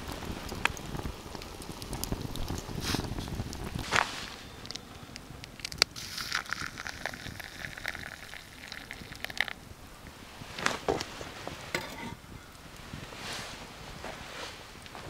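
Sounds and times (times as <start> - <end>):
water pouring onto coffee: 5.6 - 9.6.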